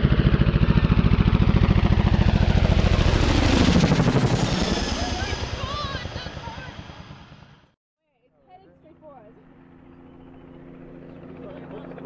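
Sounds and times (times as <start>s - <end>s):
helicopter rotor thumping: 0.0s - 7.7s
helicopter turbine noise: 0.0s - 12.0s.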